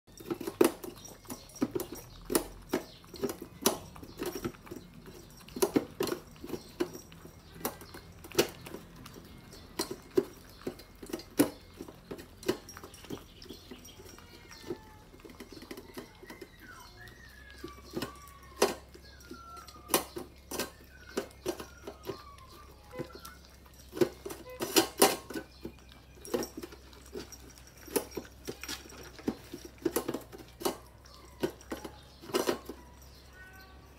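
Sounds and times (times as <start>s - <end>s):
puppies chewing: 0.0s - 33.9s
muzzles knocking metal bowls: 0.1s - 33.6s.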